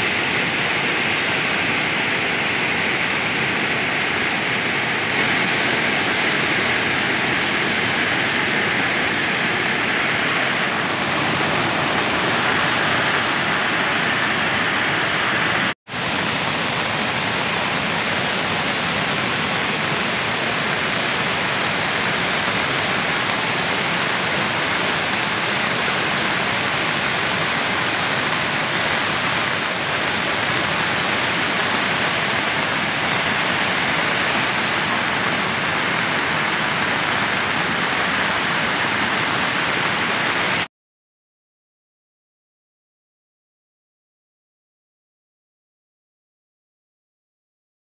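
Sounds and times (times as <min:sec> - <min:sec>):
waterfall rushing over rocks: 0:00.0 - 0:40.7.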